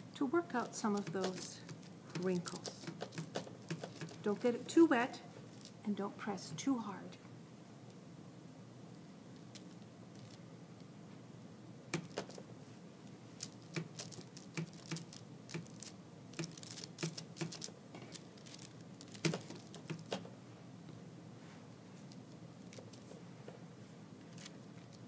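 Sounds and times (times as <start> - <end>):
paintbrush tapping and rustling: 0.6 - 4.4, 11.9 - 12.4, 13.4 - 20.3.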